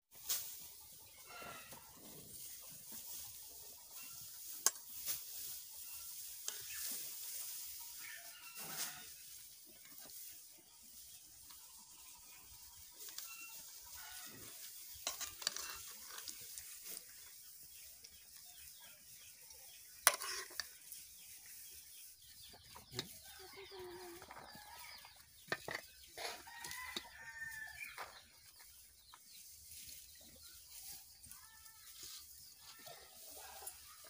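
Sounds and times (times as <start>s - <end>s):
rooster crowing and clucking: 1.2s - 2.0s, 7.9s - 9.2s, 13.1s - 14.6s, 22.8s - 28.3s
metal spoon scraping a pan: 13.1s - 17.0s, 19.9s - 20.8s, 25.4s - 27.6s.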